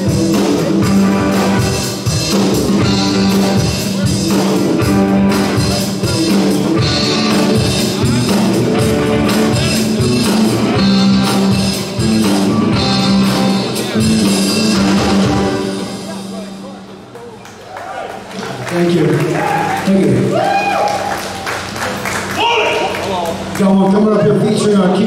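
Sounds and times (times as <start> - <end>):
rock band playing: 0.0 - 17.4.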